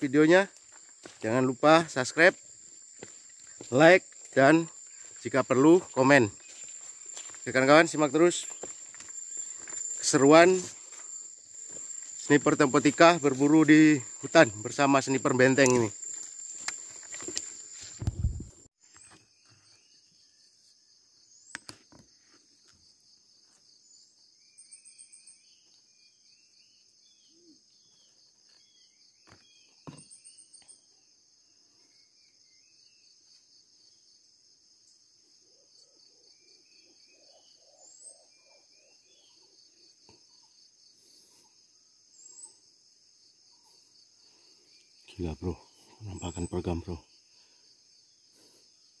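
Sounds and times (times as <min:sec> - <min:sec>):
high-pitched insect chorus: 0:00.0 - 0:49.0.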